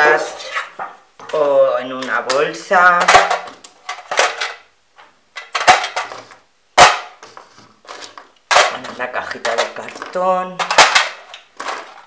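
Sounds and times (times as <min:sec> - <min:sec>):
plastic buttons clattering in metal tin: 0:07.9 - 0:12.0.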